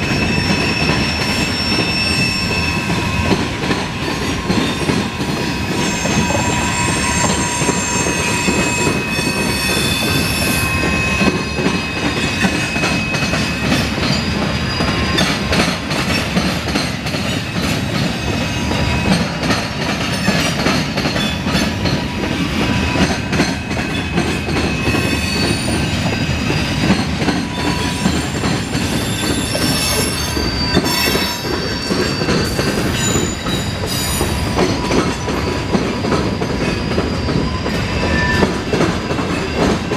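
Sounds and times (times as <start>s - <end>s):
wheel squeal: 0.0s - 16.3s, 21.2s - 39.9s
train wheels rumbling and clicking: 0.0s - 39.9s.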